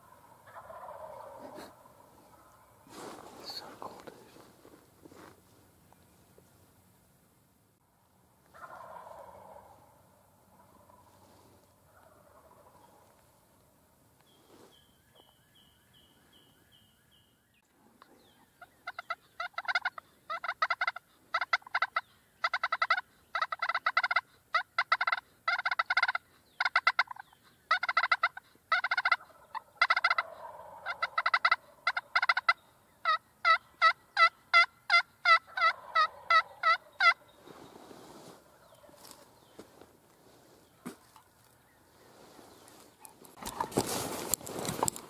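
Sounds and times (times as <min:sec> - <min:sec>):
turkeys gobbling: 0:00.0 - 0:04.4, 0:08.4 - 0:13.5, 0:18.0 - 0:44.9
evenly spaced calls: 0:00.0 - 0:06.8, 0:08.4 - 0:17.4, 0:18.4 - 0:44.9.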